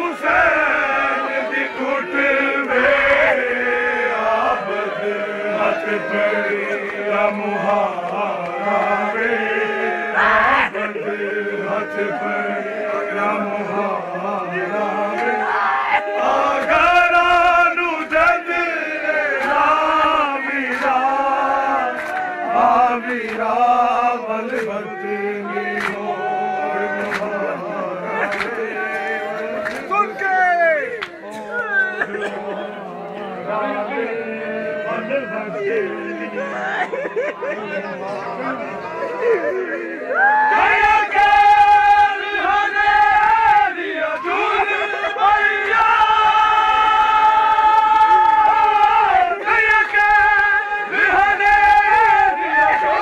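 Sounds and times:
men chanting a lament: 0:00.0 - 0:53.0
hands slapping chests: 0:25.8 - 0:26.1, 0:27.0 - 0:27.4, 0:28.2 - 0:29.9.

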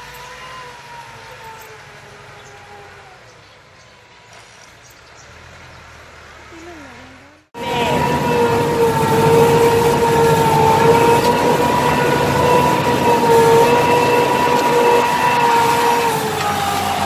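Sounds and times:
tractor engine under load: 0:00.0 - 0:06.5, 0:07.6 - 0:17.0
steady whine: 0:07.5 - 0:17.0.

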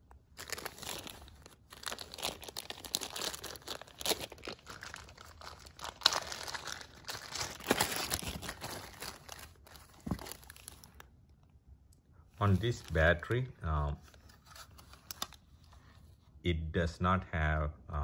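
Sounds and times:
plastic bag crinkling: 0:00.2 - 0:11.1, 0:12.4 - 0:13.3.

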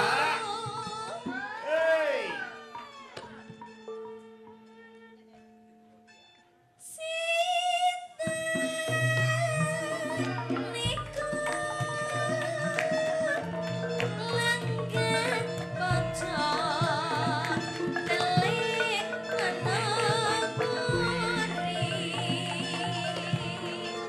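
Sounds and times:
woman singing with vibrato: 0:00.0 - 0:01.7, 0:06.8 - 0:24.0
gamelan accompaniment: 0:00.0 - 0:24.0
percussion: 0:00.0 - 0:24.0.

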